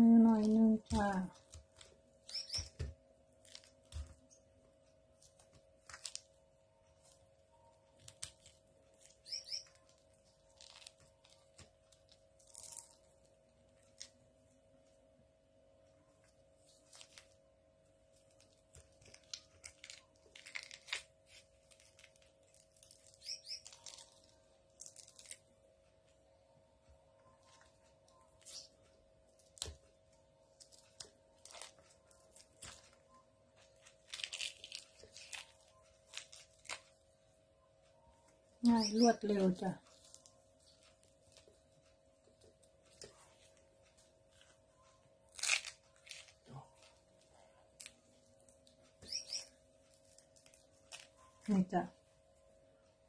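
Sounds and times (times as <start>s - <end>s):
faint hum: 0.0s - 53.0s
fruit peel tearing and crackling: 0.3s - 4.3s, 5.1s - 14.2s, 16.6s - 17.4s, 18.1s - 25.4s, 29.4s - 29.9s, 30.6s - 37.0s, 45.2s - 46.9s, 47.7s - 51.4s.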